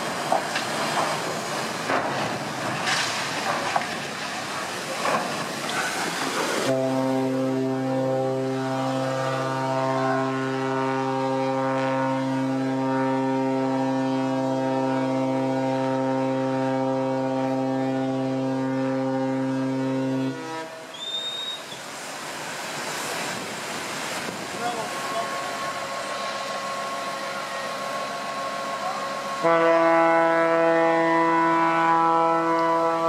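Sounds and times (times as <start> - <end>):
ship's horn blast: 5.9 - 22.1, 24.2 - 33.0
short rising whistle: 20.9 - 21.9.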